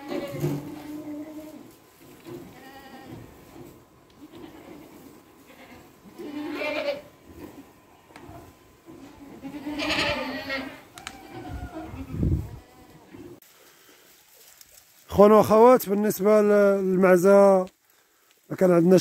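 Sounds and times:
goats bleating: 0.0s - 1.7s, 2.4s - 3.3s, 4.1s - 7.2s, 9.0s - 13.3s.

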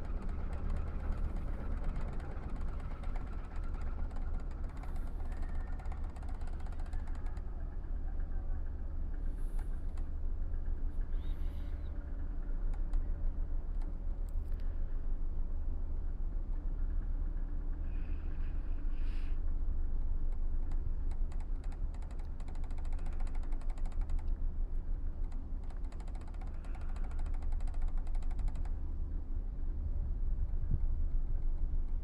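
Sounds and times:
ferry engine rumble: 0.0s - 32.0s
rapid ticking rattle: 25.2s - 28.8s.

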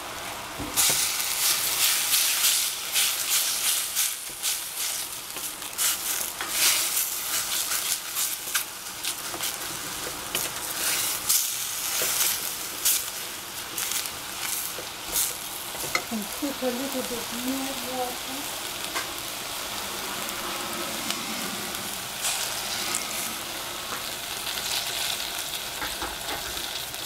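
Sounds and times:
mushrooms sizzling in a pan: 0.0s - 27.0s.

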